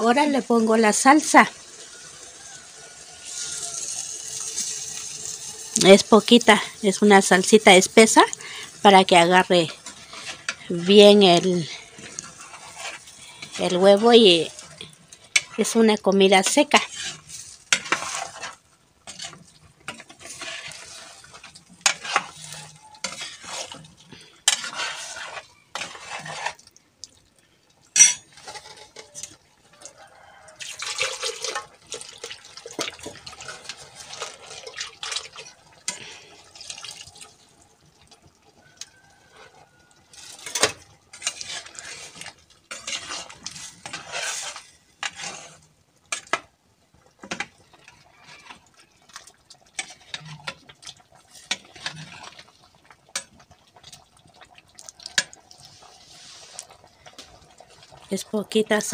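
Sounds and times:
metal spoon scraping in pot: 9.2 - 26.7, 28.0 - 29.4, 38.8 - 46.5, 49.8 - 52.5, 55.1 - 57.8
spoon clinking against pot: 28.0 - 28.2.

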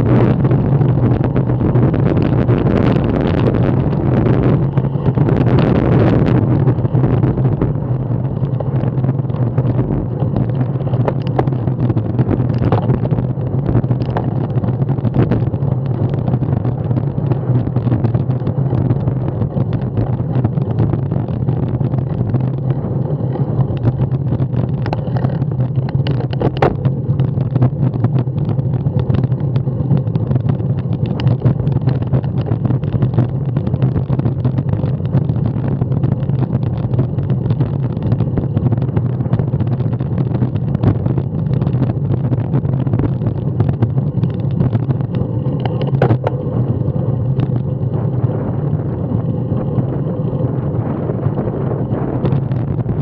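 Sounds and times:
wind and tyre rumble: 0.0 - 53.0.

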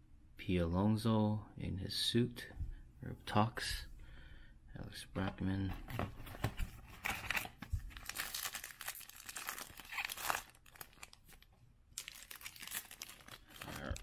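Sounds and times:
plastic wrapper crinkling and tearing: 6.9 - 14.0.

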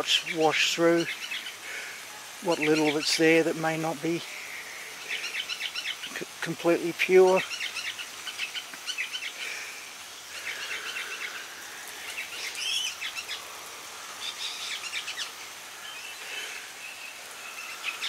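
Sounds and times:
birds chirping: 0.0 - 18.0
steady background hiss: 0.0 - 18.0.

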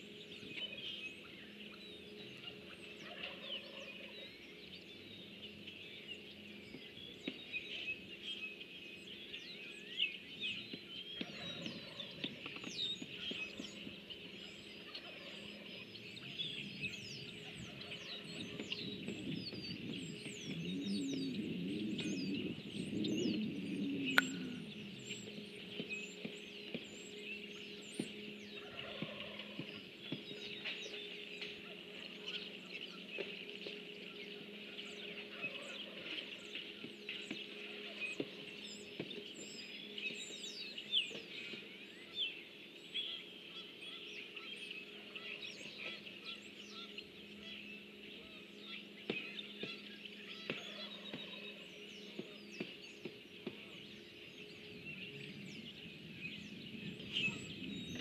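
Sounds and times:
birds chirping and trilling: 0.0 - 58.0
steady low hum: 0.0 - 58.0.

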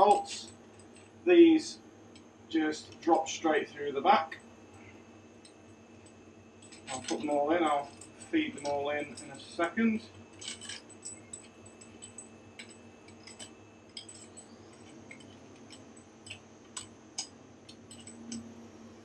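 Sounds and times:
metal bolts clicking and clinking: 0.0 - 1.2, 5.4 - 18.6
faint steady hum: 0.0 - 19.0.

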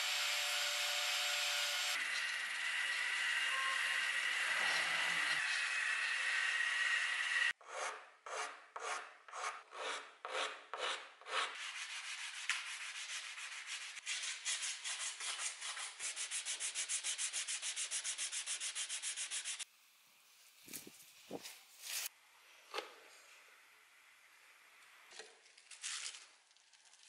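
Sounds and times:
rotary polisher whine: 0.0 - 7.6
hand sanding strokes: 8.8 - 19.6.

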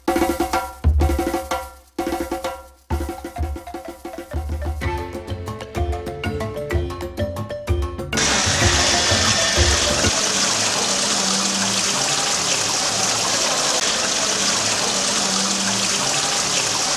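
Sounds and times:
light percussive music: 0.0 - 10.2
fountain water trickling over rocks: 8.2 - 16.9.

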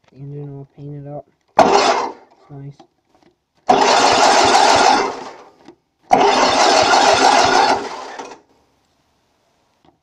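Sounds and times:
starter cranking engine: 1.6 - 2.3, 3.6 - 5.5, 6.1 - 8.4.

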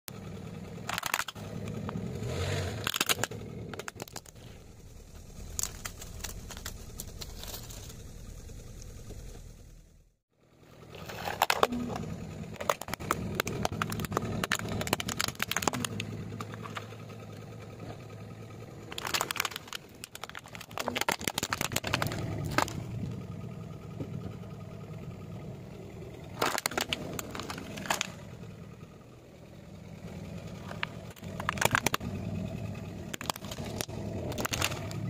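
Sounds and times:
car engine running: 0.1 - 35.0
plastic toys cracking under tyre: 0.8 - 4.6, 5.2 - 7.9, 11.0 - 17.0, 18.8 - 23.0, 26.3 - 28.3, 30.3 - 35.0.

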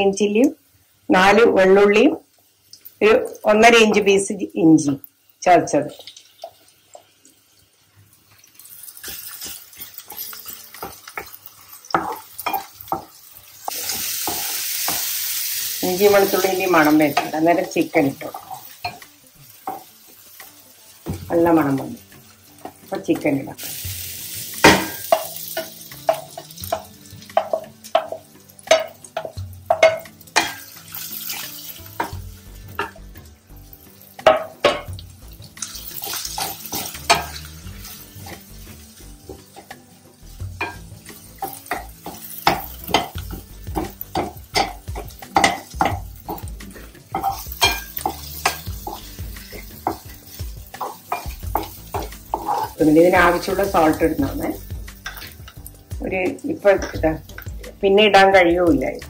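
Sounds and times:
light sizzle: 0.0 - 59.0
spatula scraping pan: 40.5 - 55.6.

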